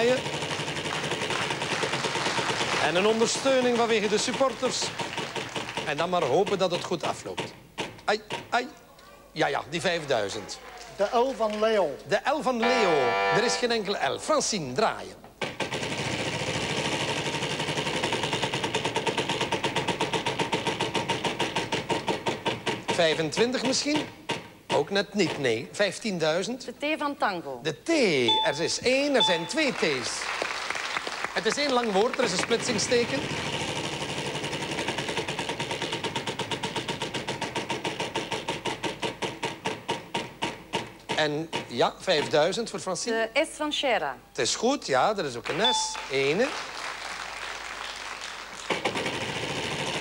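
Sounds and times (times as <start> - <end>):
prize wheel clicking: 28.3 - 30.1, 45.5 - 46.4.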